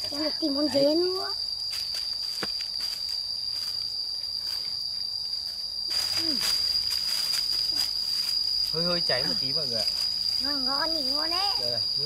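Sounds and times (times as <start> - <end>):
insects shrilling: 0.0 - 12.0
rustling: 5.9 - 11.3.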